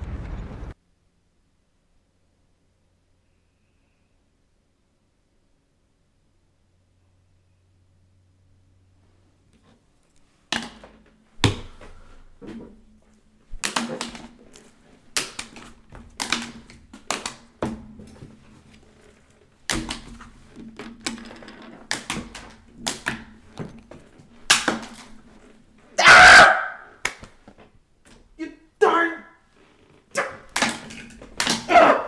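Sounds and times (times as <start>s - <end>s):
hands banging on desk: 10.5s - 12.8s, 13.6s - 18.7s.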